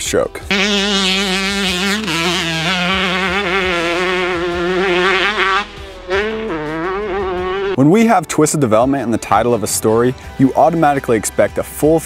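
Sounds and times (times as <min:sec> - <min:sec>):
motorcycle engine at high revs: 0:00.5 - 0:07.8.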